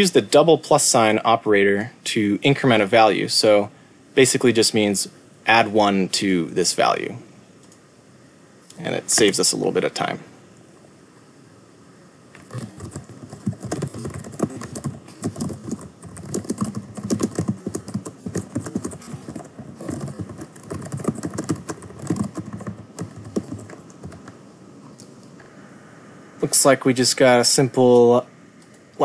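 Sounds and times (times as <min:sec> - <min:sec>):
typing on a keyboard: 0:12.5 - 0:24.4.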